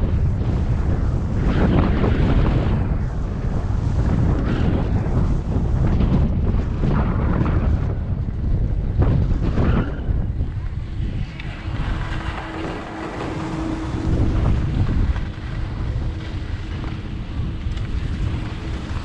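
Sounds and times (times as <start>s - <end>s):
steady hum: 0.0s - 19.0s
wind buffeting microphone: 0.0s - 19.0s
skis scraping over snow: 9.0s - 19.0s.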